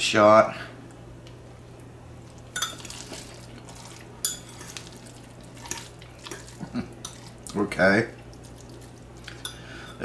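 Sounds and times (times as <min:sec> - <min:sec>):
fork clinking against a bowl: 0:02.6 - 0:03.1, 0:04.2 - 0:04.9, 0:05.6 - 0:07.3.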